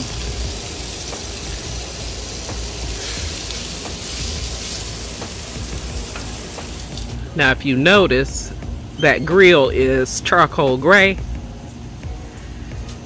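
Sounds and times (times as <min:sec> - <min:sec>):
sausages sizzling on a grill: 0:00.0 - 0:07.4.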